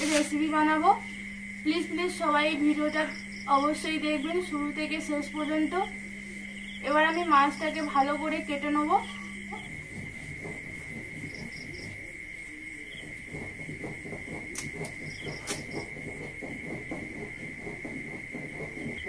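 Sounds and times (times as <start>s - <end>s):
fish scraped on a blade: 0.0s - 0.4s
crickets trilling: 0.0s - 19.0s.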